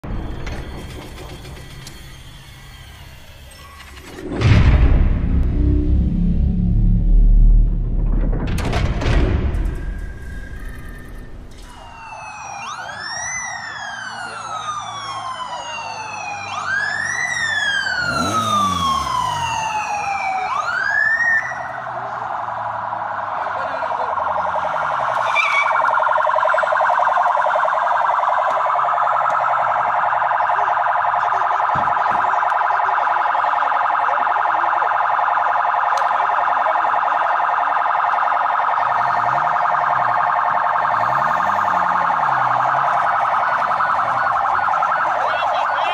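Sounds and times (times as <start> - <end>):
electronic sirens wailing: 9.5 - 45.9
siren warble: 9.6 - 45.9.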